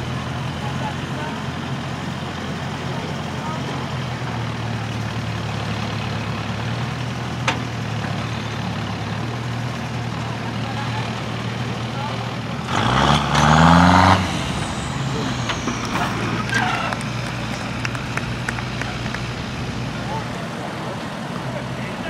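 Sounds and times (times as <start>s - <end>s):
engine running slow and steady: 0.0s - 22.0s
loud burst of noise: 13.2s - 20.0s.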